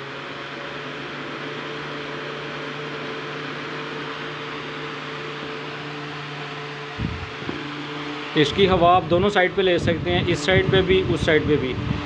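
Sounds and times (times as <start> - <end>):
fan motor hum: 0.0 - 12.0
rush of air from fan blades: 6.4 - 12.0.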